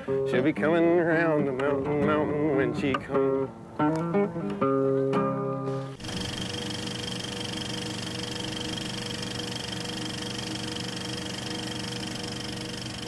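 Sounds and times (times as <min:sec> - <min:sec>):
film projector whirring and clattering: 0:06.0 - 0:13.0.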